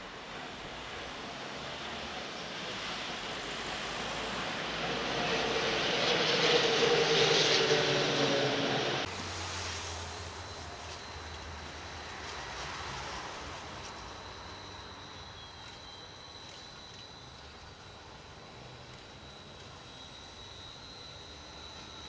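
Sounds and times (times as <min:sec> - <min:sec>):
street noise: 0:00.0 - 0:22.0
tram humming: 0:00.3 - 0:22.0
tram rolling on rails: 0:08.8 - 0:20.5.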